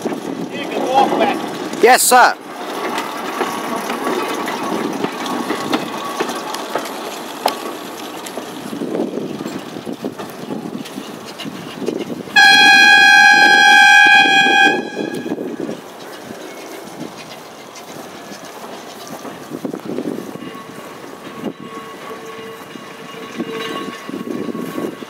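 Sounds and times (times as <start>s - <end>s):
tram running noise: 0.0s - 25.0s
steam whistle blast: 12.4s - 15.6s.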